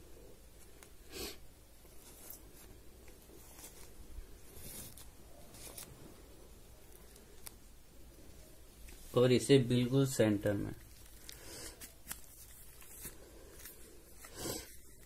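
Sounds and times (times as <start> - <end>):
paper tape rustling and crinkling: 1.8 - 6.2, 10.7 - 15.0.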